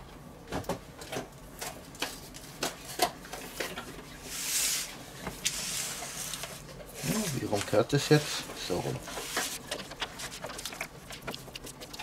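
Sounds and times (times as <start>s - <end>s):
bacon handling clicks and crackles: 9.6s - 12.0s.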